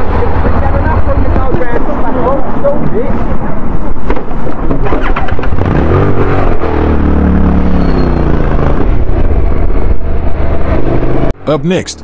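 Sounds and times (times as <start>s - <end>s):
motorcycle engine accelerating: 4.2s - 11.4s.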